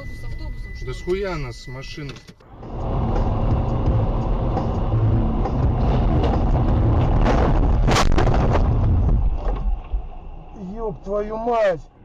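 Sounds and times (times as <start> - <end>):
car tyres and engine rumbling: 0.0 - 12.0
car crash impacts: 5.5 - 10.2.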